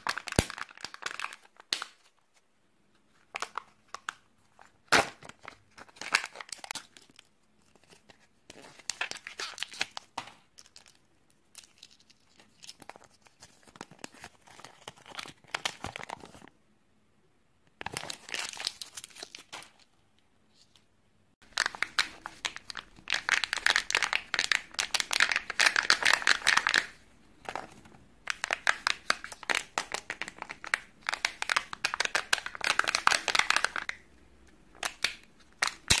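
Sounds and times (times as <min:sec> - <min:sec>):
wrappers crinkling and tearing: 0:00.0 - 0:02.0.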